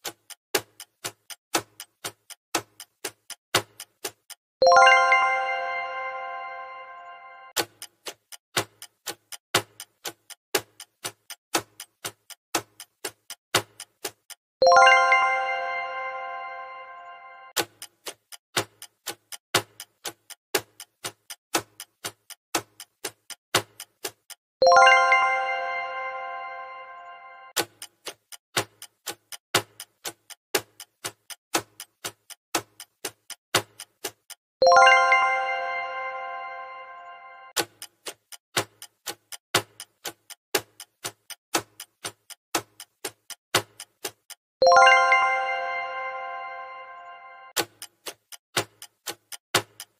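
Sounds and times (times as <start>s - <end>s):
clock ticking countdown: 0.0s - 5.7s, 6.3s - 25.7s, 26.3s - 49.9s
chime: 4.6s - 7.6s, 14.6s - 17.5s, 24.7s - 27.5s, 34.6s - 37.5s, 44.6s - 47.6s.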